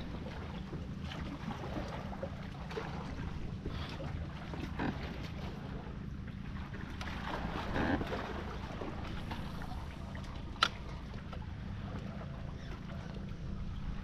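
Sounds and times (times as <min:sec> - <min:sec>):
steady low rumble: 0:00.0 - 0:14.0
wash of water or wind: 0:00.0 - 0:14.0.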